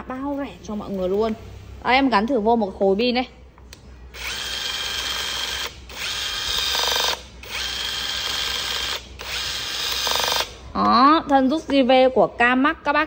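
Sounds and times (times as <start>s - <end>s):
rivet gun motor whirring: 4.2s - 10.6s.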